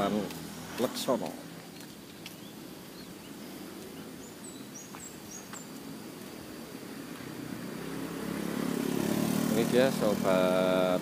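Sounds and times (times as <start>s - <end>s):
outdoor background noise: 0.0s - 11.0s
small birds chirping: 0.0s - 11.0s
motorcycle engine approaching: 4.2s - 11.0s.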